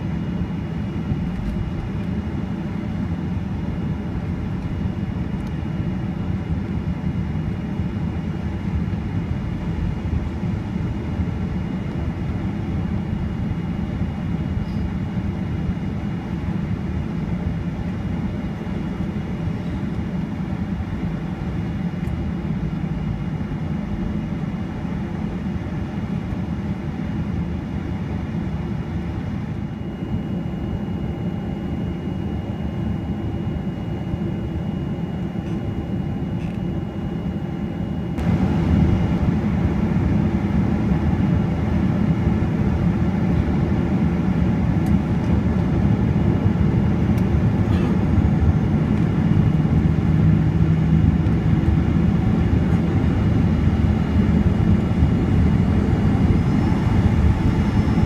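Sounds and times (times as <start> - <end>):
jet engines humming: 0.0 - 58.0
high whine: 29.4 - 43.1, 46.2 - 58.0.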